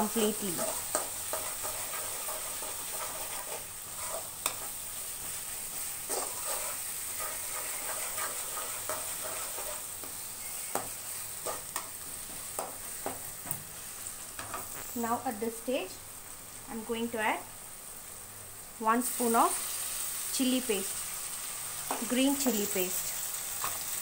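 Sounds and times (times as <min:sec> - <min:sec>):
onions sizzling in hot oil: 0:00.0 - 0:24.0
metal spoon scraping a pan: 0:00.4 - 0:12.0.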